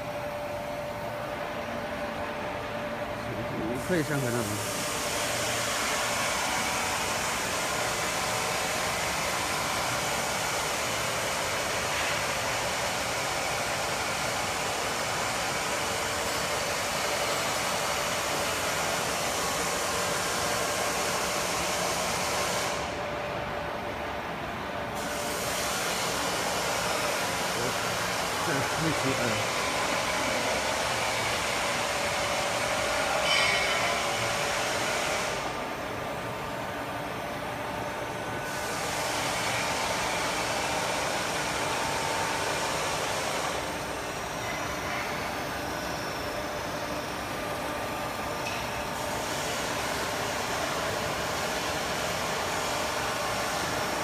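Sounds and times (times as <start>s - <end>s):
machine whirring hiss: 0.0s - 54.0s.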